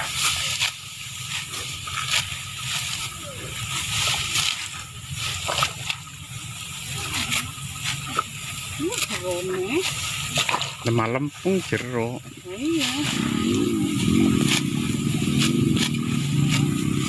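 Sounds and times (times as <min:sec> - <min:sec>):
crisp snaps of stalks: 0:00.0 - 0:06.2
dry rice stalks rustling: 0:00.0 - 0:17.0
faint voices: 0:01.3 - 0:17.0.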